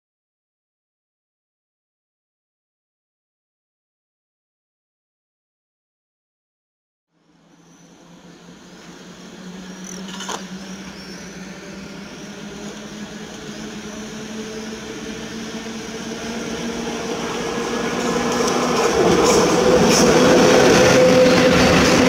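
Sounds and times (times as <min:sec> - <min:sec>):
electric locomotive hum: 0:07.1 - 0:22.0.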